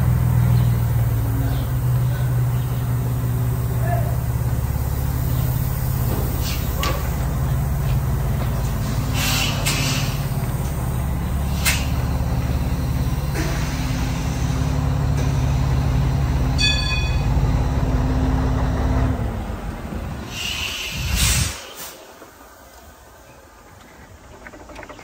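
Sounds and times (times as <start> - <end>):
diesel truck engine idling: 0.0 - 24.2
short air hisses: 5.7 - 6.8, 8.8 - 10.4, 20.2 - 22.2.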